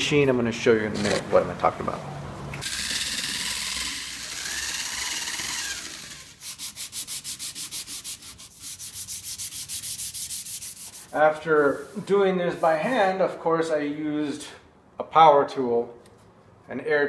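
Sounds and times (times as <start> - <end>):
hand sanding strokes: 6.3 - 13.2.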